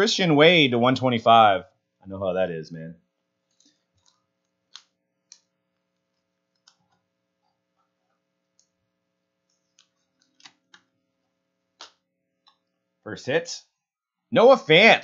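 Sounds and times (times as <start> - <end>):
cards clicking into plastic sleeves: 3.5 - 7.0, 9.5 - 11.0, 11.8 - 12.6.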